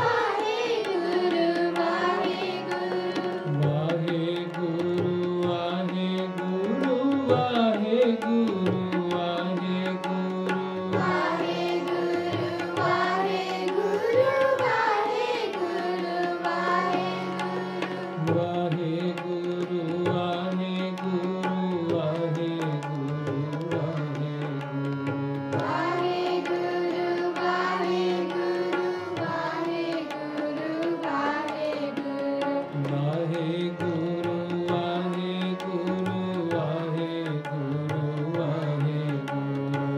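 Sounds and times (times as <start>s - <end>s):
voices singing a hymn: 0.0s - 3.4s, 10.9s - 18.1s, 25.6s - 32.2s
harmonium chords: 0.0s - 39.9s
tabla rhythm: 0.0s - 39.9s.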